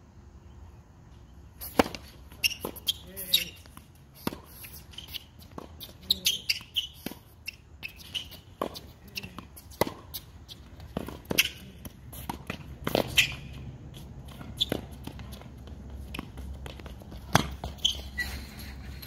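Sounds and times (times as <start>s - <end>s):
tennis ball struck by rackets: 1.6s - 3.6s, 4.2s - 5.9s, 8.3s - 13.7s, 14.3s - 17.9s
tennis ball bouncing on hard court: 1.6s - 18.2s.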